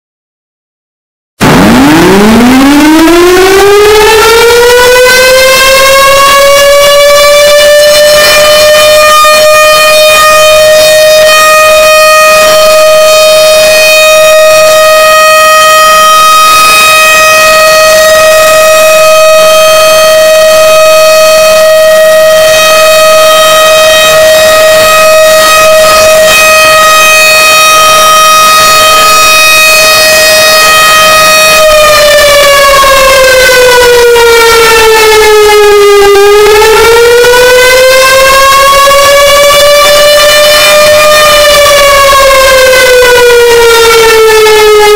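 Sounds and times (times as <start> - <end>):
distorted siren wailing: 1.4 - 44.9.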